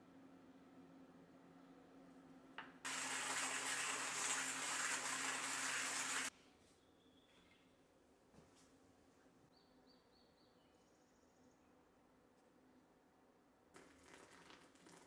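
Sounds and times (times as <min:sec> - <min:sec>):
tap water running: 0:02.9 - 0:06.3, 0:13.8 - 0:15.0.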